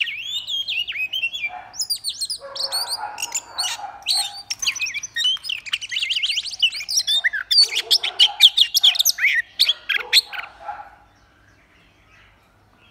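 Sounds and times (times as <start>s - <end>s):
bird singing whistled notes: 0.0s - 10.3s.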